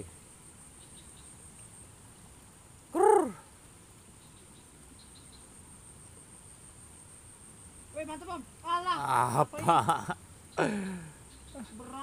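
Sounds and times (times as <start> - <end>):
short hooting call: 2.9 - 3.4.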